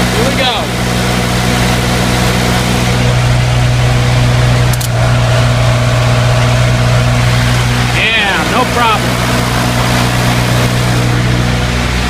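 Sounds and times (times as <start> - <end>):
diesel generator running: 0.0 - 12.0
sharp click: 4.7 - 5.0.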